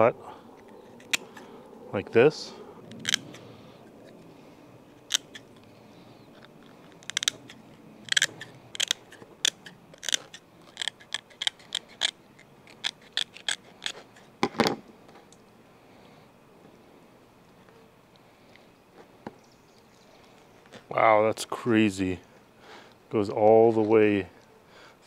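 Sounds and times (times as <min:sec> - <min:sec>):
shears clacking: 0:00.6 - 0:01.5, 0:04.9 - 0:05.6, 0:06.7 - 0:14.3
shears snipping through fish skin: 0:02.9 - 0:03.3, 0:05.0 - 0:05.4, 0:07.0 - 0:14.3.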